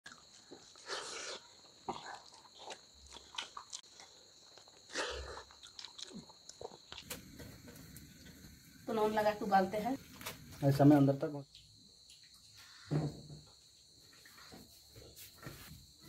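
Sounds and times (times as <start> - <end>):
chewing and mouth clicks: 0.1 - 7.2.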